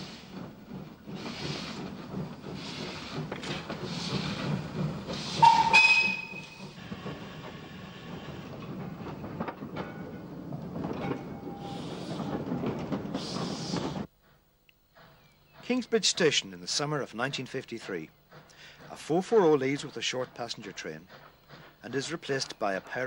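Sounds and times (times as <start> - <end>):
wagon clanks: 0.0 - 14.1, 15.0 - 23.0
goods wagons rolling: 0.0 - 14.4, 15.0 - 23.0
steam locomotive exhaust chuffs: 0.0 - 23.0
steam whistle: 5.3 - 6.6.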